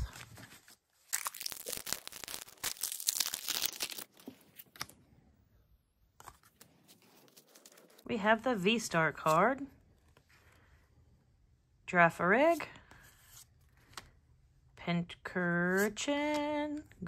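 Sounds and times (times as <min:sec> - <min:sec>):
foil wrapper tearing and crinkling: 0:01.0 - 0:04.3
faint card handling: 0:06.2 - 0:08.1.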